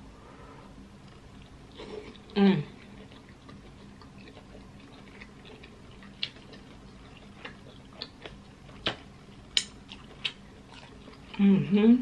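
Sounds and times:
faint steady hum: 0:00.0 - 0:12.0
mouth smacks and clicks: 0:07.4 - 0:10.4.

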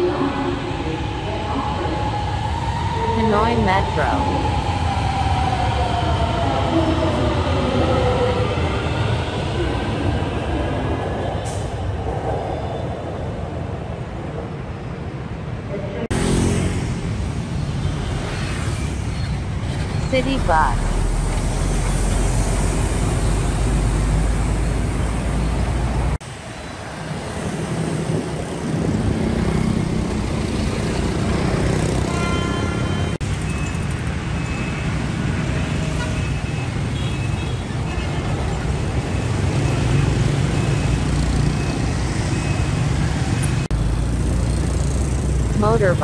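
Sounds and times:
street traffic: 0:00.0 - 0:46.0
bus engine rumble: 0:19.0 - 0:26.6.

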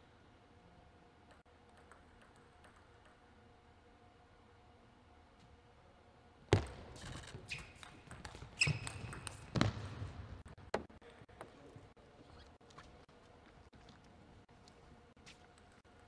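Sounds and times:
ball hitting rackets: 0:07.5 - 0:11.6
ball bouncing on table: 0:07.8 - 0:09.8.

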